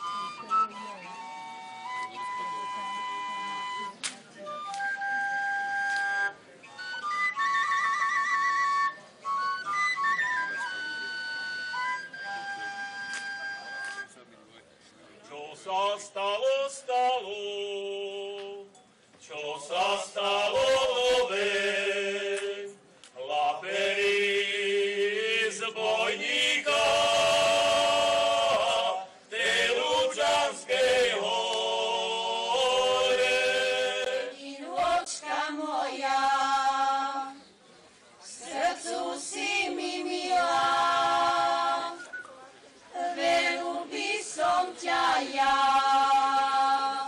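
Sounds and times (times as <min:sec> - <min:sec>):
men singing in harmony: 0:19.3 - 0:37.4
women singing: 0:23.7 - 0:37.4, 0:38.3 - 0:42.1, 0:42.9 - 0:47.0.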